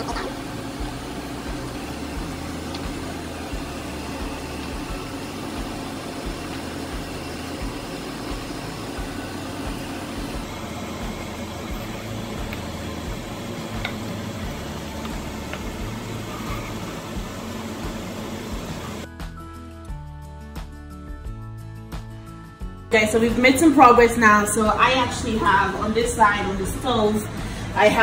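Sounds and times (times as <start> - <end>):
appliance fan whirring: 0.0 - 19.1.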